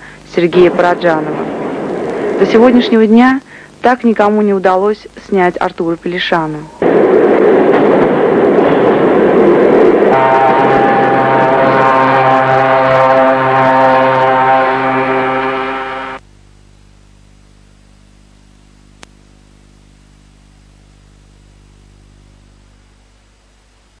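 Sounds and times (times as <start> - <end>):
faint low hum: 0.0 - 24.0
loud sustained chord: 8.5 - 16.3
click: 19.0 - 19.2.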